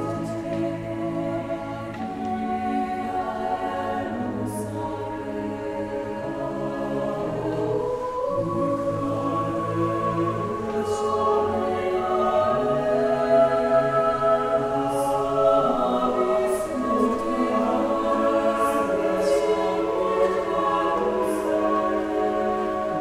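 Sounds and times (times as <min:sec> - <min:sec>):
choir singing held chords: 0:00.0 - 0:23.0.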